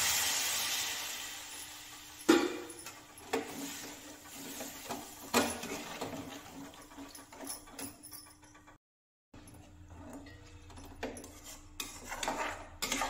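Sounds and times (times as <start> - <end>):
soft sizzle: 0.0 - 5.6.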